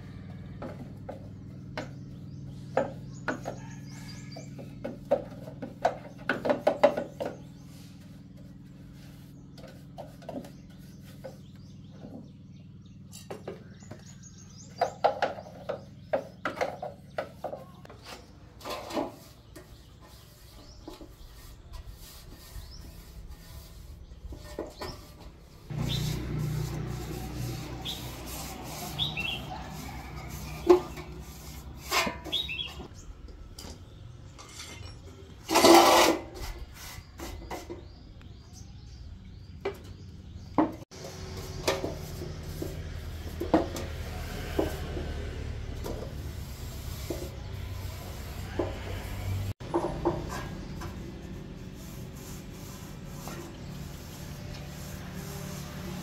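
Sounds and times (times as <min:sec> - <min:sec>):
birds chirping: 0:00.2 - 0:35.4, 0:36.7 - 0:44.8
metal parts knocking and scraping: 0:33.4 - 0:36.5.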